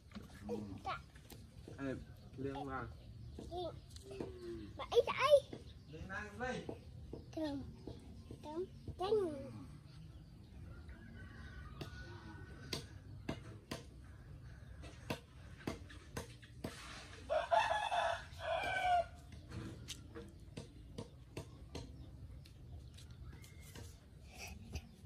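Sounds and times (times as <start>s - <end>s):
rooster crowing: 10.8s - 12.6s, 17.3s - 19.2s.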